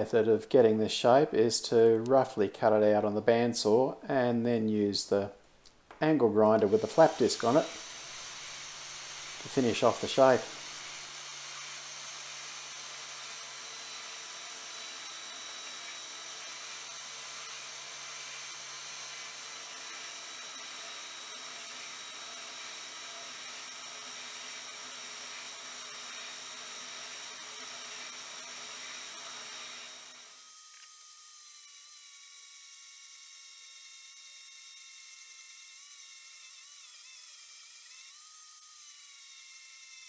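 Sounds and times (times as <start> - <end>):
bandsaw cutting metal: 6.4 - 40.0.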